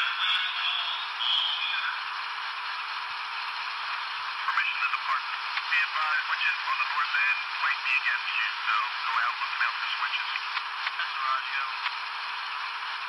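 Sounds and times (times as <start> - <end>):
person talking over radio: 0.0 - 2.0, 4.5 - 11.9.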